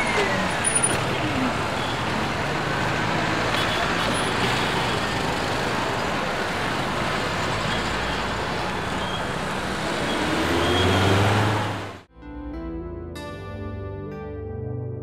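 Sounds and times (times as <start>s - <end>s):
street traffic: 0.0s - 12.1s
vehicle engine revving: 5.5s - 12.1s.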